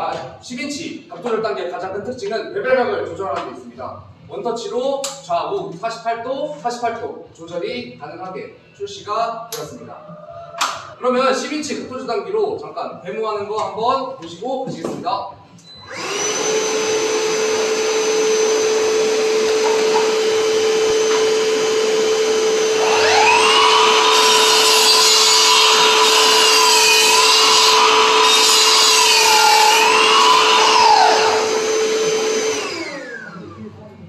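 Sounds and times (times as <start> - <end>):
dust extractor humming: 15.8 - 33.3
miter saw cutting wood: 15.9 - 33.4.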